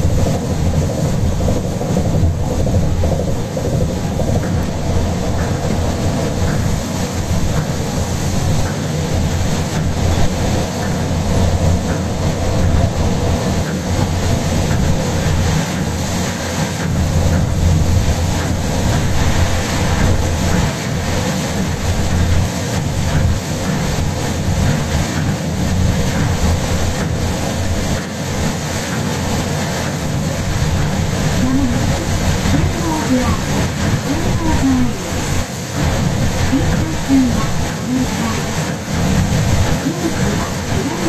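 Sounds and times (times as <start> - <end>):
monorail train running drone: 0.0 - 41.0.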